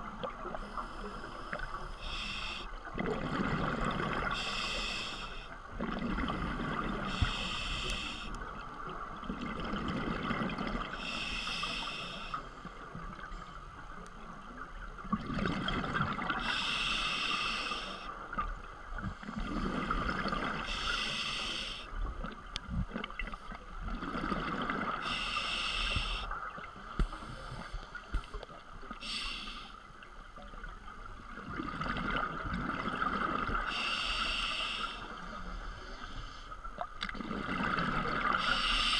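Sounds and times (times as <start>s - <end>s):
scuba regulator hissing inhale: 0.6s - 2.8s, 4.2s - 5.6s, 7.0s - 8.4s, 11.0s - 12.5s, 16.4s - 18.1s, 20.0s - 21.9s, 25.0s - 26.4s, 29.0s - 29.8s, 33.7s - 36.6s, 38.3s - 38.9s.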